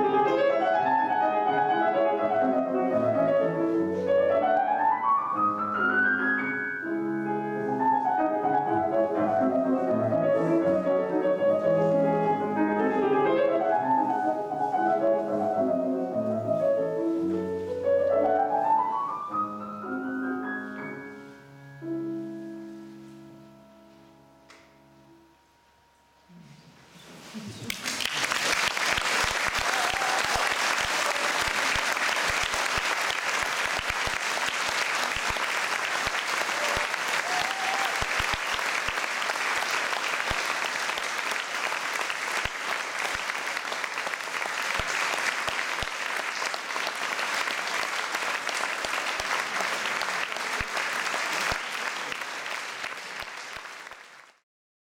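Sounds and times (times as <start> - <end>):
audience applauding: 27.6 - 54.4.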